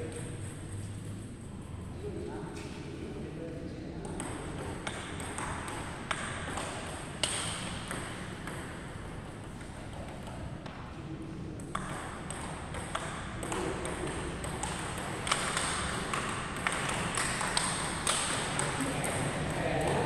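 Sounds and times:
table tennis ball knocking: 4.1s - 10.8s, 11.6s - 20.0s.

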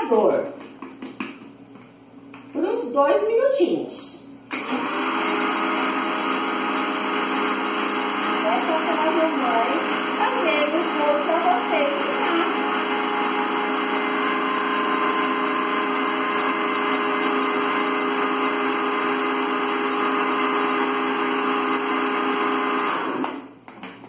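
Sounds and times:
electric blender running: 4.5s - 23.6s.

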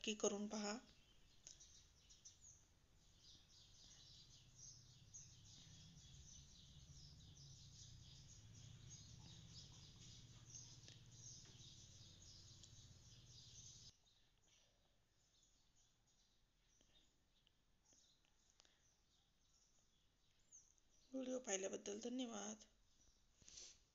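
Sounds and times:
faint birds chirping: 0.0s - 23.9s
low steady hum: 0.9s - 13.9s.

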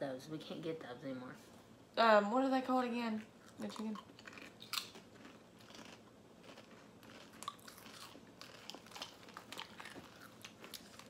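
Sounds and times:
potato chips chewed: 3.4s - 11.0s.

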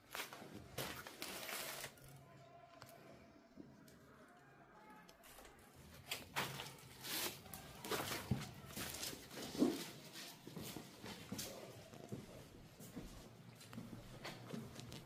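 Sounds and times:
footsteps crunching over debris: 0.0s - 2.2s, 5.2s - 15.0s.

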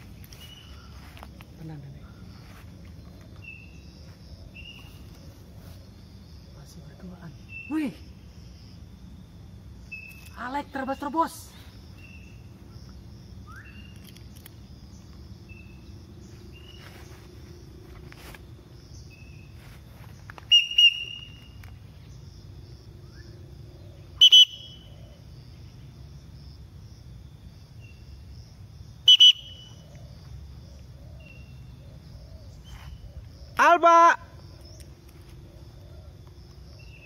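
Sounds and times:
faint bird chirps: 0.0s - 8.2s, 9.8s - 17.2s, 18.9s - 22.2s, 29.0s - 33.7s
short double-note whistles: 20.5s - 21.5s, 24.2s - 24.8s, 29.1s - 29.7s.

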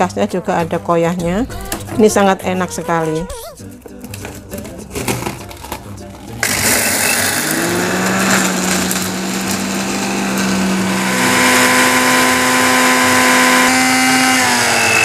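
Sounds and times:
blender grinder motor hum: 6.4s - 15.0s.

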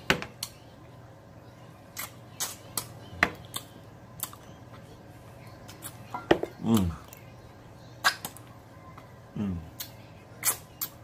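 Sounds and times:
wet mouth smacks: 8.0s - 8.4s, 9.8s - 11.0s.

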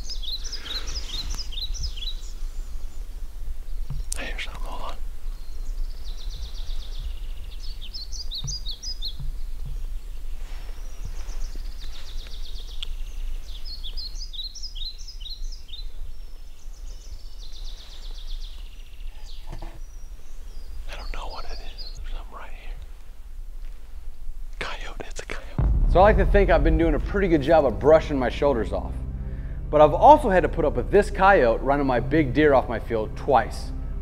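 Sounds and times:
songbirds trilling and chirping: 0.0s - 25.6s
steady low rumble: 25.5s - 34.0s.

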